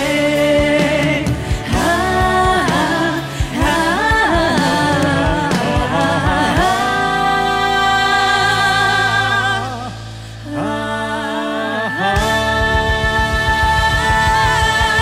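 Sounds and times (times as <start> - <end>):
backing music: 0.0 - 15.0
woman singing pop song: 0.0 - 15.0.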